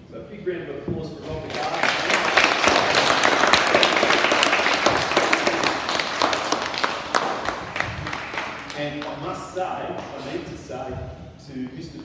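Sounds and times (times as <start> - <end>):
audience clapping: 1.4 - 9.4.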